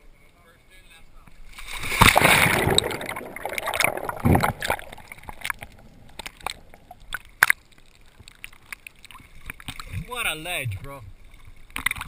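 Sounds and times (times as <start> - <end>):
water sloshing: 1.4 - 12.0
underwater bubbles rushing: 1.7 - 8.6
underwater clicks and pops: 2.0 - 10.1, 11.7 - 12.0.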